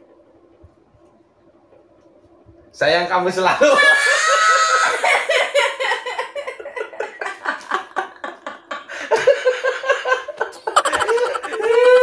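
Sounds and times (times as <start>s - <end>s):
man and woman laughing: 3.6s - 12.0s.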